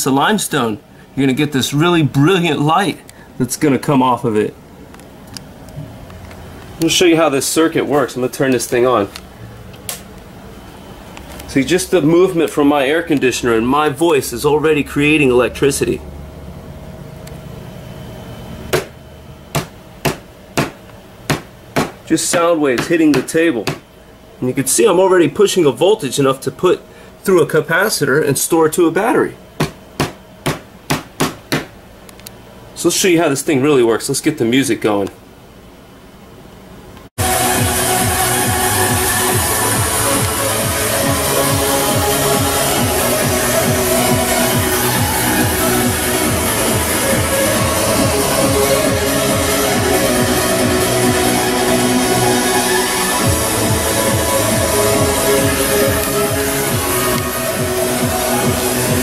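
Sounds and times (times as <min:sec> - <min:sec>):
low steady hum: 0:00.0 - 0:59.0
electronic dance music: 0:37.2 - 0:59.0.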